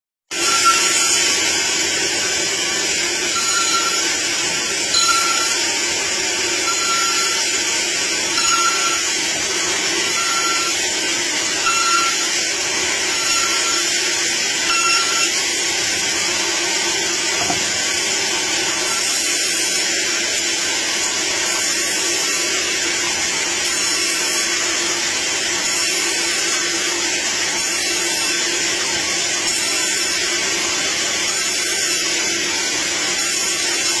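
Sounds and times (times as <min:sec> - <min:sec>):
band saw cutting wood: 0:00.3 - 0:34.0
short high tone: 0:03.3 - 0:04.2, 0:04.9 - 0:05.8, 0:06.6 - 0:07.5, 0:08.4 - 0:09.2, 0:10.0 - 0:10.8, 0:11.6 - 0:12.3, 0:13.1 - 0:13.9, 0:14.7 - 0:15.4.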